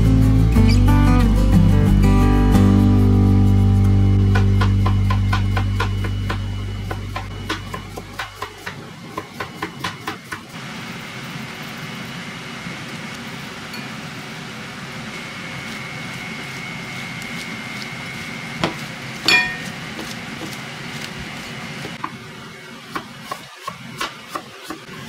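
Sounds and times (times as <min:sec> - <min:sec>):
knife chopping on cutting board: 0:18.6 - 0:22.2, 0:22.9 - 0:24.9
glass clinking on glass: 0:19.3 - 0:19.7.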